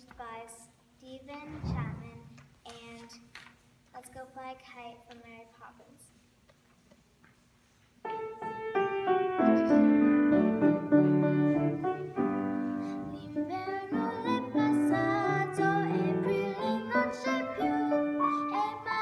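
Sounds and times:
grand piano playing: 8.0 - 19.0
girl singing: 12.8 - 19.0.

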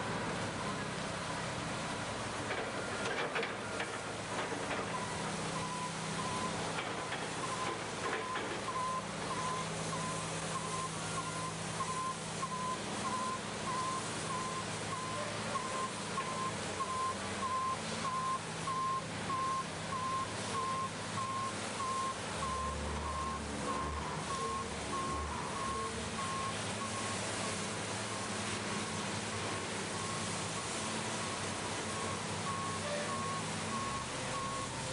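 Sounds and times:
water spraying: 0.0 - 34.9
reversing alarm beeping: 4.9 - 6.6, 7.4 - 28.3, 29.9 - 34.9.

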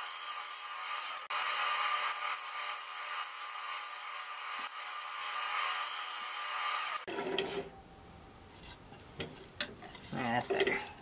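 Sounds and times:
lathe tool scraping wood: 0.0 - 7.7.

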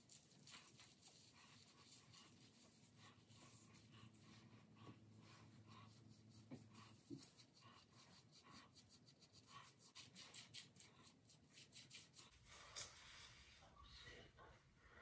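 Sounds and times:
brush and comb scratching hair: 0.0 - 13.4.

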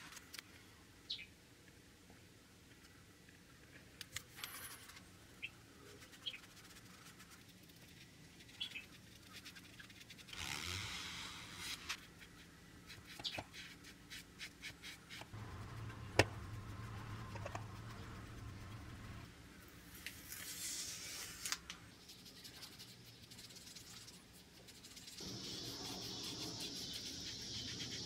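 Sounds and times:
soft rubbing: 13.8 - 19.3.

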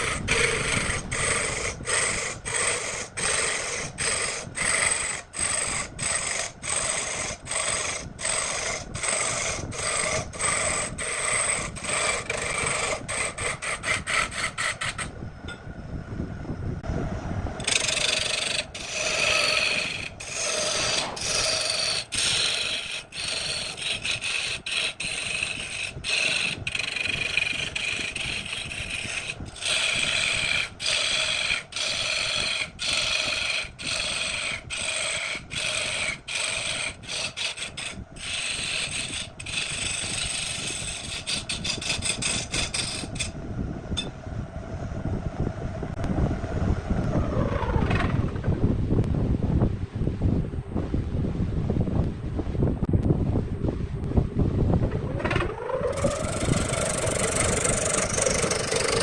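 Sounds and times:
lathe running: 0.0 - 15.1, 17.6 - 43.3, 54.9 - 59.0
tool cutting wood on lathe: 0.0 - 15.1, 17.6 - 43.3, 54.9 - 59.0.

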